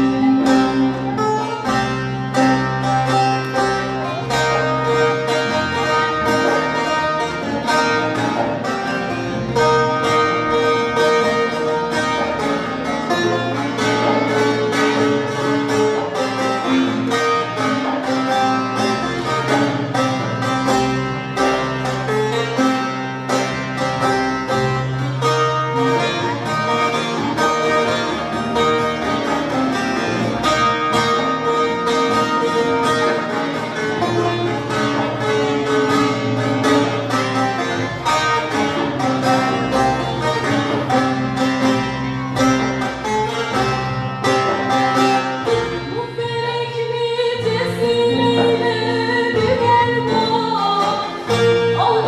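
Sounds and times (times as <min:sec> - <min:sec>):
plucked lute and guitars: 0:00.0 - 0:52.0
woman singing: 0:45.8 - 0:52.0.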